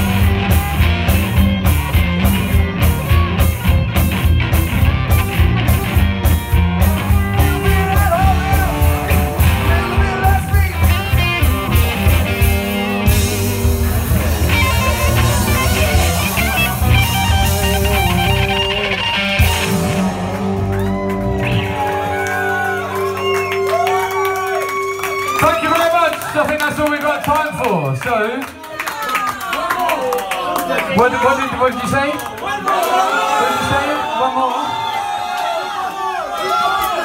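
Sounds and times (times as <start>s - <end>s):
drum beat: 0.0s - 23.6s
live rock band playing: 0.0s - 26.8s.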